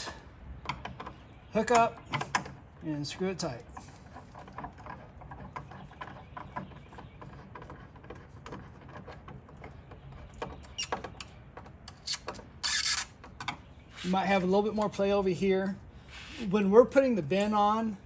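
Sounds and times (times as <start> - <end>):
screwdriver clicking and creaking: 7.2 - 13.6.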